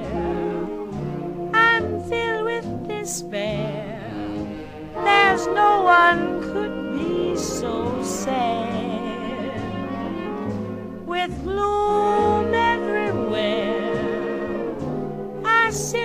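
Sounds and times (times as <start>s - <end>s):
small jazz band accompaniment: 0.0s - 16.0s
woman singing: 1.6s - 4.4s, 5.0s - 10.1s, 11.1s - 14.6s, 15.4s - 16.0s.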